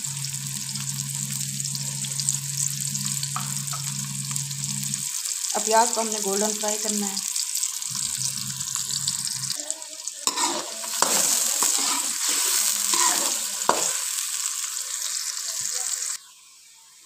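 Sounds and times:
onions sizzling in hot oil: 0:00.0 - 0:16.9
spatula scraping and stirring: 0:10.2 - 0:14.2.

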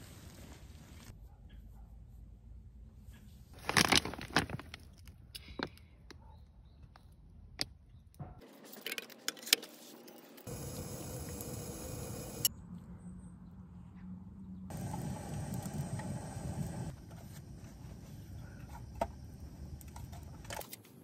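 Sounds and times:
camping gear clinking and rattling: 0:03.6 - 0:05.8
gas stove hissing: 0:10.5 - 0:12.5, 0:14.7 - 0:20.4.

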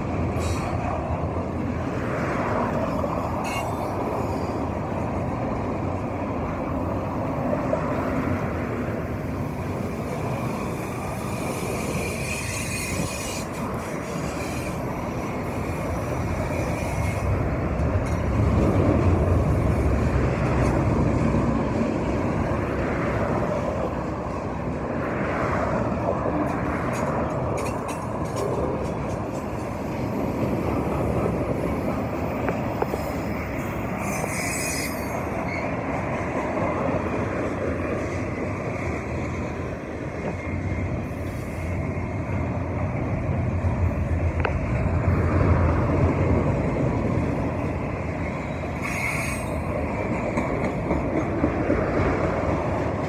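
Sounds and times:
train wheels rumbling on rails: 0:00.0 - 0:53.0
high wheel squeals: 0:02.9 - 0:04.7, 0:10.5 - 0:17.4, 0:32.8 - 0:35.8, 0:47.6 - 0:49.8.

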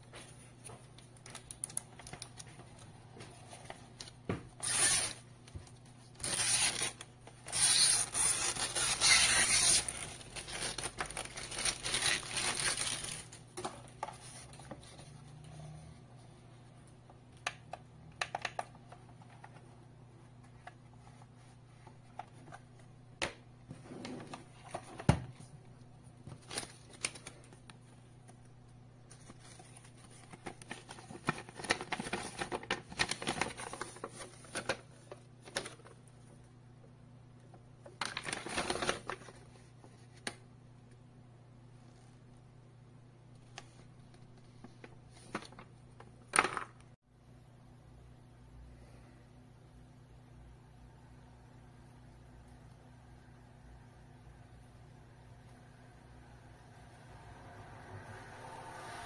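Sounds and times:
paper rustling: 0:06.0 - 0:15.2, 0:29.1 - 0:36.0.

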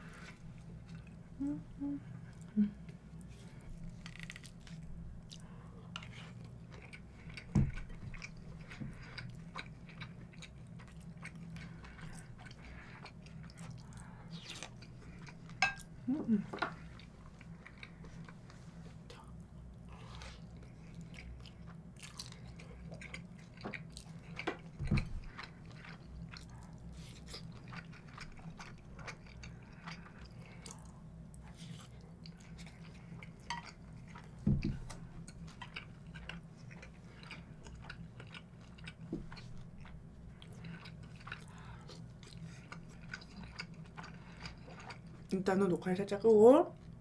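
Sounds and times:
chewing with wet mouth clicks: 0:04.1 - 0:15.9, 0:20.5 - 0:45.3.

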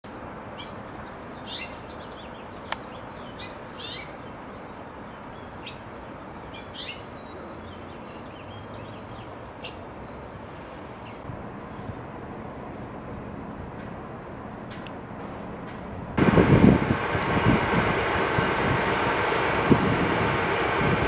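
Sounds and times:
steady background noise: 0:00.1 - 0:21.0
finch chirping: 0:01.4 - 0:04.2, 0:06.5 - 0:07.2.

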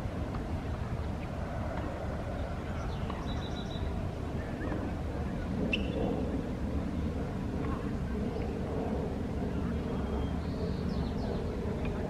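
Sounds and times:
low outdoor rumble: 0:00.0 - 0:12.0
bird chirps: 0:02.8 - 0:03.9, 0:05.7 - 0:06.1.

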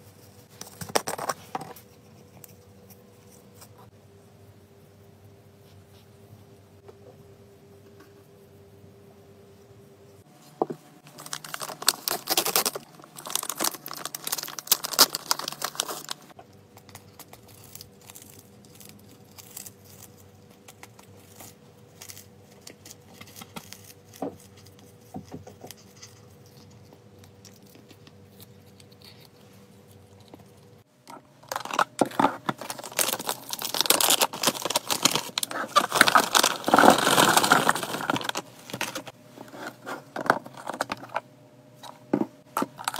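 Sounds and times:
plastic pouch crinkling: 0:11.1 - 0:24.8, 0:31.4 - 0:41.2.

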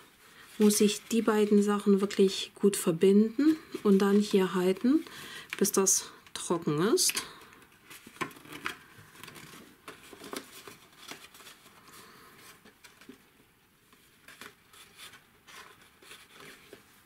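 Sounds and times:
paper rustling and scraping: 0:07.8 - 0:13.2, 0:13.9 - 0:17.0.

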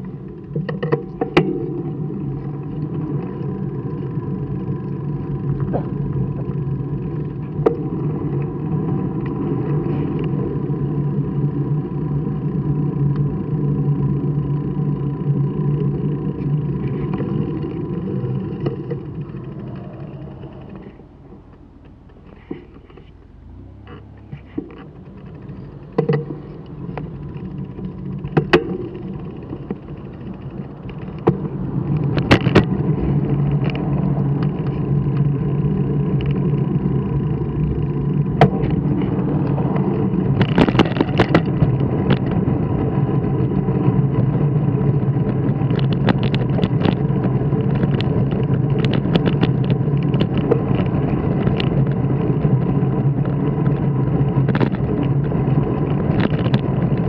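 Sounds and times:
small vehicle driving on asphalt: 0:00.0 - 0:57.0
scattered clicks and knocks: 0:16.3 - 0:35.3, 0:38.0 - 0:42.6, 0:44.9 - 0:57.0.

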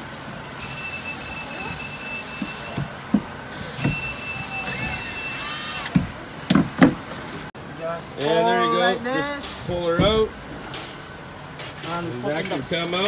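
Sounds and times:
light knocks and bumps: 0:02.8 - 0:04.0.

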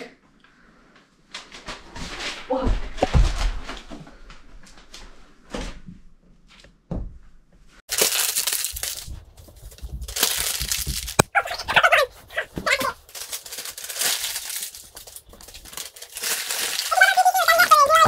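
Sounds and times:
crinkling: 0:07.9 - 0:18.0.

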